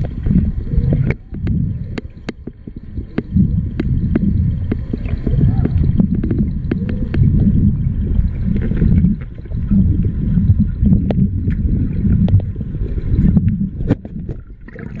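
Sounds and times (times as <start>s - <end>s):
underwater rumble and sloshing: 0.0s - 15.0s
small clicks and ticks: 0.9s - 7.3s, 8.2s - 10.2s, 11.0s - 12.6s.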